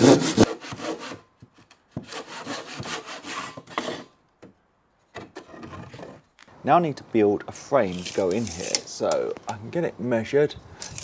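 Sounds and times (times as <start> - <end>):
handsaw cutting wood: 0.0 - 1.2, 2.0 - 4.1.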